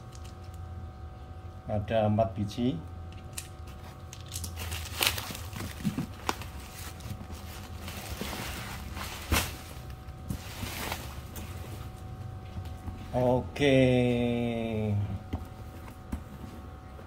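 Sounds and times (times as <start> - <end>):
packaging rustling and clicking: 4.1 - 10.0.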